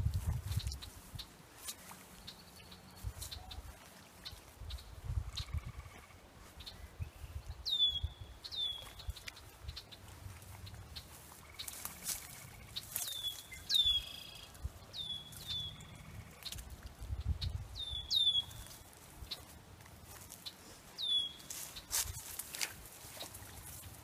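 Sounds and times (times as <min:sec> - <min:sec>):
net rustling through reeds: 0:10.0 - 0:14.8, 0:18.5 - 0:24.0
bird calling: 0:10.9 - 0:16.6, 0:17.8 - 0:19.5, 0:20.4 - 0:22.0.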